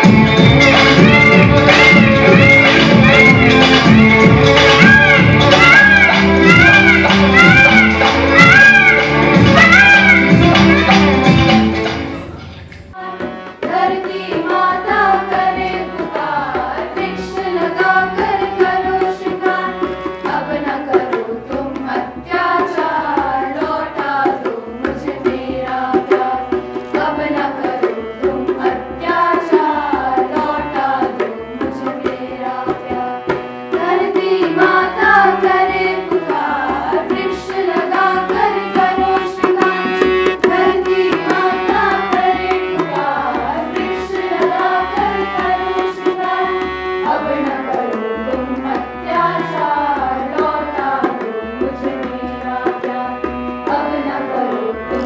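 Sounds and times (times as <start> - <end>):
harmonium drone: 0.0 - 12.3, 26.4 - 55.0
tabla playing: 0.0 - 55.0
girls' choir singing: 0.8 - 55.0.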